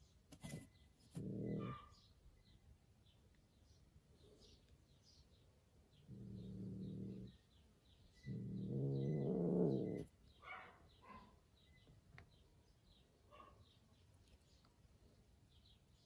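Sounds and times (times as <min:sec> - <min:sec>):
cat growling: 0:01.1 - 0:01.8, 0:06.0 - 0:07.4, 0:08.2 - 0:10.1.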